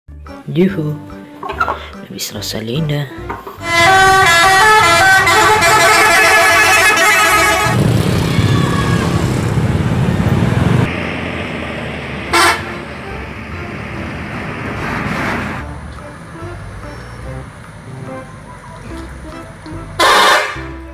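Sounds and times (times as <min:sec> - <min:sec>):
bus engine rumble: 0:03.3 - 0:20.9
musical air horn tune: 0:03.6 - 0:07.8, 0:12.3 - 0:12.9, 0:19.2 - 0:20.9
short horn toot: 0:03.6 - 0:07.8.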